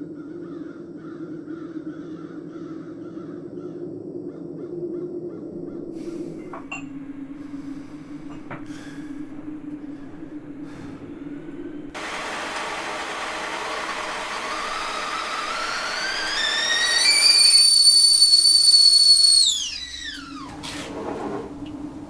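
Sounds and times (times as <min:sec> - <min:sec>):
kettle hissing: 0:05.9 - 0:22.0
kettle whistle: 0:06.0 - 0:12.0, 0:14.5 - 0:20.6.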